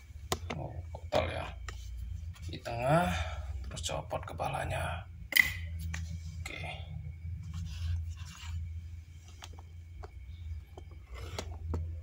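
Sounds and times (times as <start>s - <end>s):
steady low hum: 0.0s - 12.0s
handling noise rubbing and scraping: 7.4s - 10.0s, 10.7s - 12.0s.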